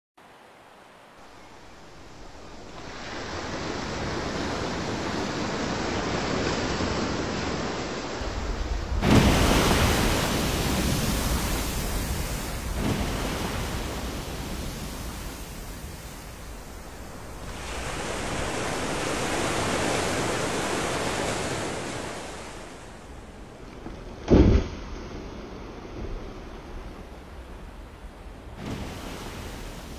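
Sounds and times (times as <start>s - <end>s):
choppy sea: 0.2s - 29.9s
whale splashing into water: 9.0s - 16.0s, 28.6s - 29.9s.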